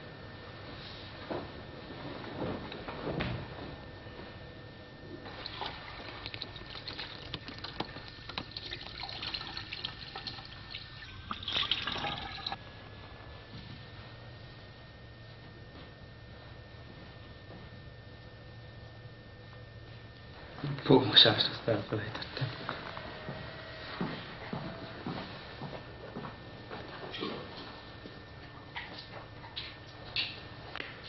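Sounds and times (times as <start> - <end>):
tap water running into sink: 5.4 - 12.6.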